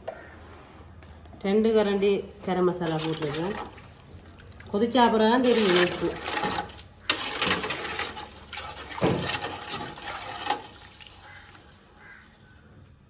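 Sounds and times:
ladle stirring liquid in metal pot: 2.6s - 12.2s.

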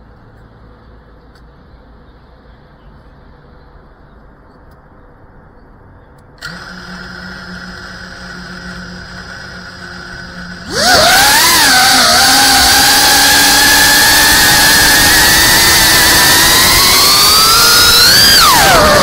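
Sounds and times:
drone motors buzzing: 6.4s - 19.0s.

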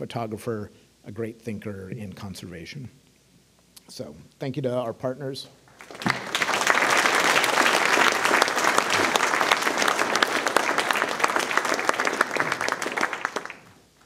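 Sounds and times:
audience applauding: 5.7s - 13.8s.

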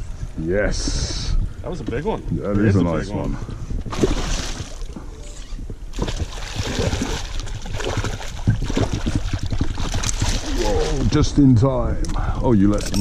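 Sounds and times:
wind rumble on microphone: 0.0s - 13.0s
water splashing around boat: 3.6s - 11.7s.

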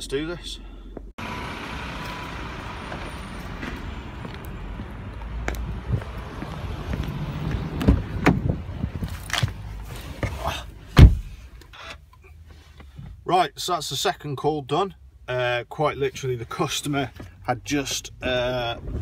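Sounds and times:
traffic rumble: 0.0s - 19.0s
knocks and thumps: 11.0s - 11.3s.

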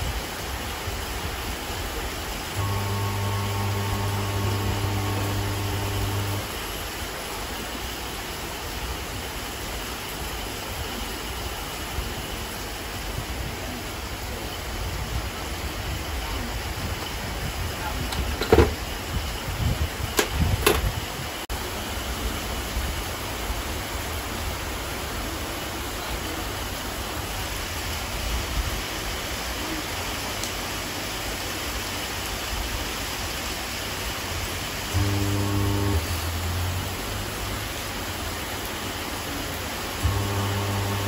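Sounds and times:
background hiss: 2.4s - 12.9s, 32.7s - 41.0s.

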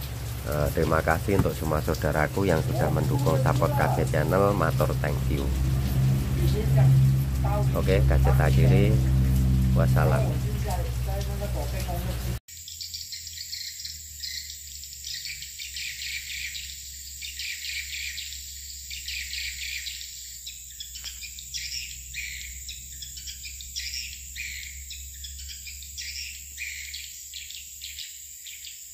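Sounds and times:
swiftlets twittering: 0.0s - 27.0s
high insect-like whine: 0.0s - 28.9s.

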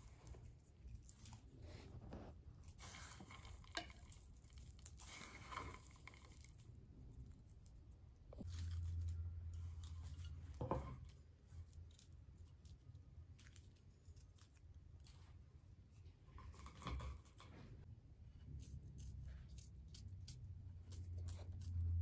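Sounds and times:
knife scraping garlic: 18.4s - 22.0s.

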